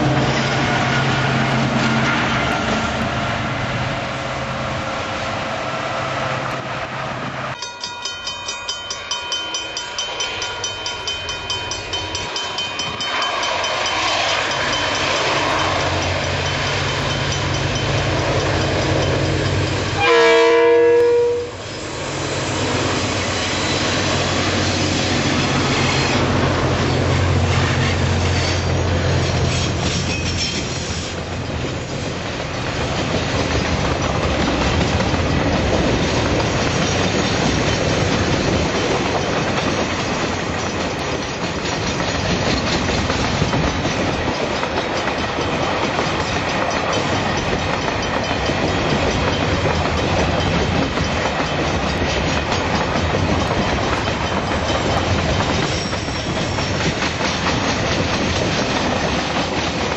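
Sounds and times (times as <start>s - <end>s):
locomotive engine rumbling: 0.0s - 7.6s, 13.1s - 59.9s
train wheels clickety-clack: 7.5s - 20.6s, 21.6s - 59.9s
locomotive horn: 20.0s - 21.6s.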